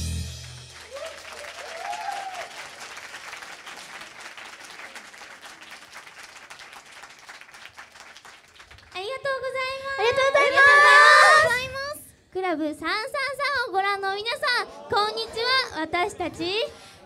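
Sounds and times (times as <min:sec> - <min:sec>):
bass note: 0:00.0 - 0:00.8
audience applauding: 0:00.4 - 0:09.0.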